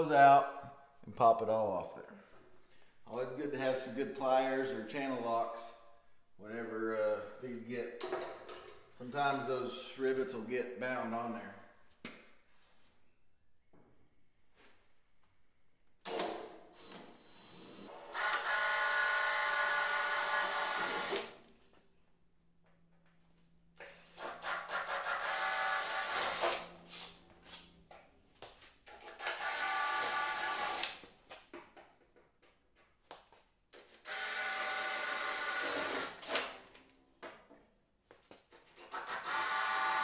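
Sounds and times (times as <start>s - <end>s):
cordless drill drilling rivets: 16.8s - 21.3s, 28.9s - 31.0s, 38.6s - 40.0s.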